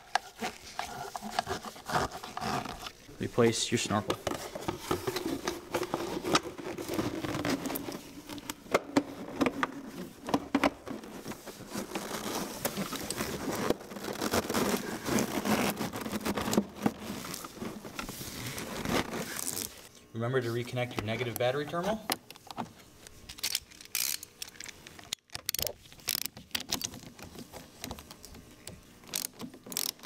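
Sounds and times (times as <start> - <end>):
rubber and plastic rubbing and scraping: 0.0 - 19.9.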